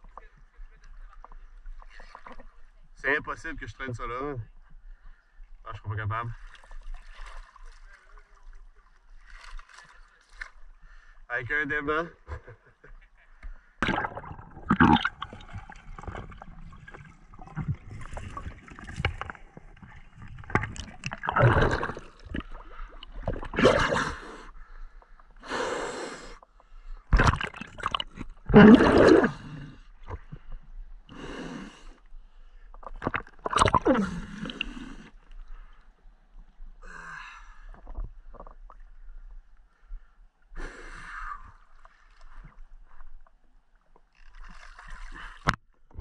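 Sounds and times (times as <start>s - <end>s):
water splashing and gurgling: 6.1s - 10.7s, 13.8s - 25.4s, 26.5s - 31.9s, 32.7s - 35.9s, 44.1s - 46.0s.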